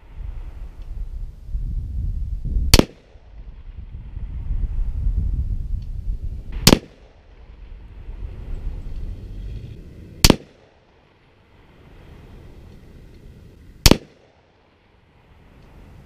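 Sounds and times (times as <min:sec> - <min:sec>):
low rumble: 0:00.0 - 0:13.9
rifle shots: 0:02.7 - 0:03.2, 0:06.5 - 0:07.2, 0:10.2 - 0:10.9, 0:13.8 - 0:14.4.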